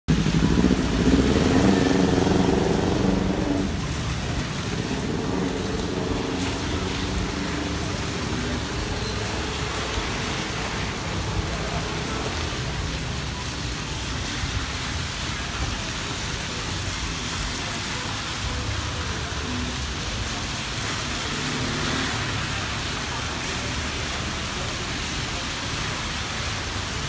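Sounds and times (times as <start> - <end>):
vehicle engine running: 0.1 - 17.6
rain and tyres hissing on wet road: 0.1 - 27.0.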